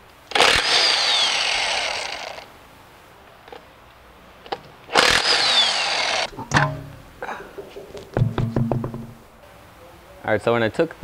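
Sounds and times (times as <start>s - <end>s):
impact wrench hammering: 8.1s - 9.3s.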